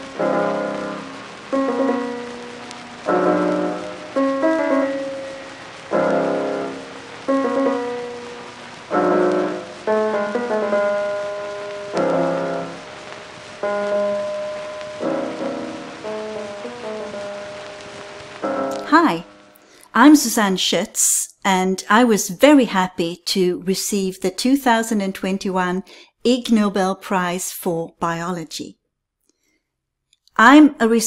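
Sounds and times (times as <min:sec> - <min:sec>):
slow piano chords: 0:00.0 - 0:19.6.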